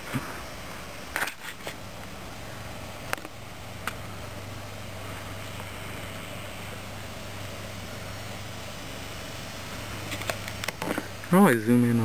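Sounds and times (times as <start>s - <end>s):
low background hum: 0.0s - 12.0s
camera handling rustle: 1.1s - 1.8s, 10.0s - 11.1s.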